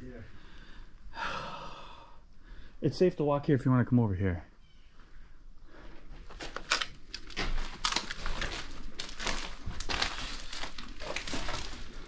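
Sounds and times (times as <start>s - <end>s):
footsteps crunching over rubble: 5.7s - 12.0s.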